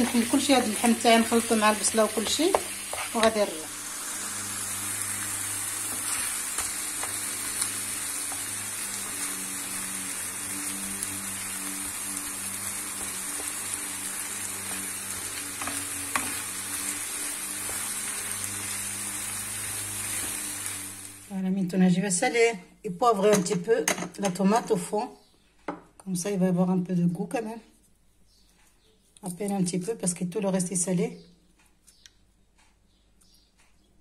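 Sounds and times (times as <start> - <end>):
wooden spatula scraping pan: 0.0 - 3.6, 5.8 - 8.5, 14.4 - 18.8
meat and onions sizzling: 0.0 - 21.4.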